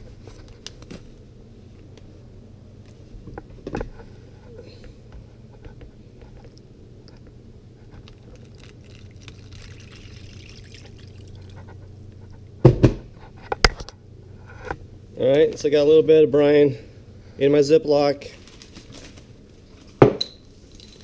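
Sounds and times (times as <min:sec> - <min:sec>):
liquid trickling into plastic bag: 0:08.0 - 0:11.8.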